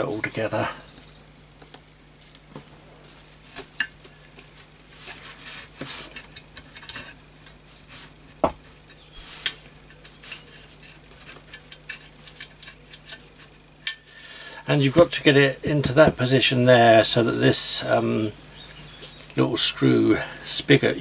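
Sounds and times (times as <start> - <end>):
metal parts clicking and clinking: 6.2 - 7.6.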